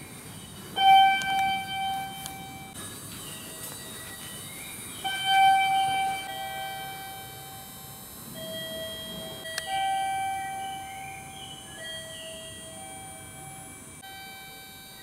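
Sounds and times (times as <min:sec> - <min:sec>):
slow electronic melody: 0:00.8 - 0:15.0.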